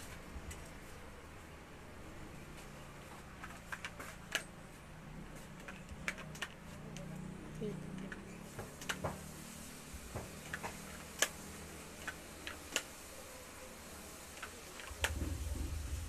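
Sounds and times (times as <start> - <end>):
low rumble: 15.1 - 16.0.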